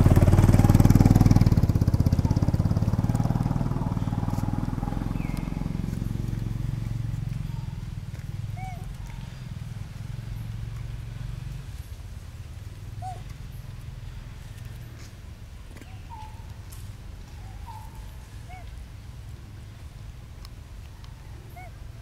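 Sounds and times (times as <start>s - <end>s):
low rumble: 0.0s - 20.3s
faint animal calls: 2.1s - 10.6s, 12.9s - 13.6s, 15.8s - 19.5s, 20.9s - 22.0s.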